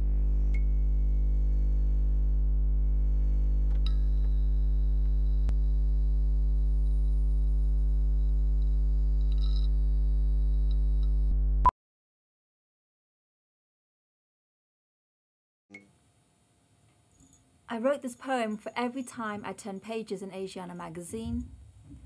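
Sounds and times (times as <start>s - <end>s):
low electrical hum: 0.0s - 11.3s.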